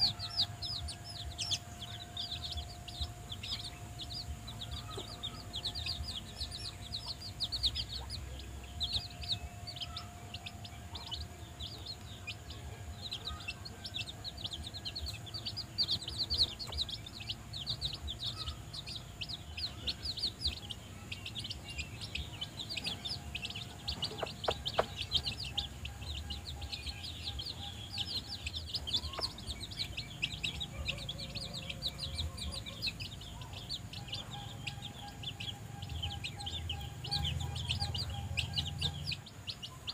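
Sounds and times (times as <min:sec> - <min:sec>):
chicks peeping: 0:00.0 - 0:39.9.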